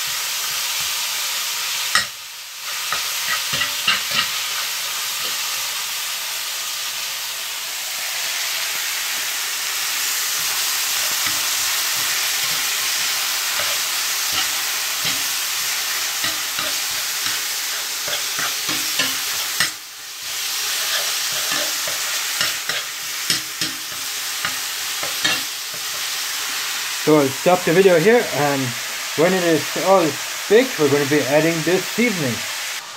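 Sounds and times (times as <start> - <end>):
meat sizzling in a frying pan: 0.0 - 32.9
spatula scraping and tapping a pan: 1.9 - 5.6, 10.4 - 19.8, 20.6 - 26.6.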